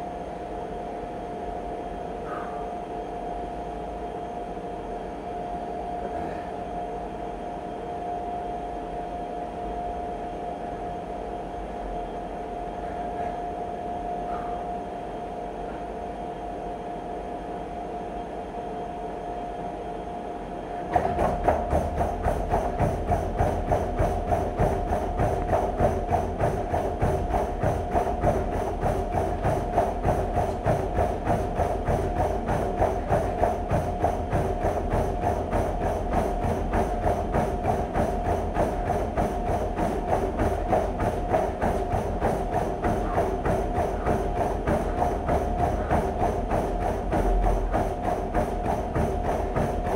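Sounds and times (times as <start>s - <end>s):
treadmill motor whine: 0.0s - 49.9s
rapid footfalls on treadmill: 9.2s - 16.0s, 20.6s - 49.9s
treadmill belt hissing: 9.3s - 18.4s, 20.2s - 49.9s.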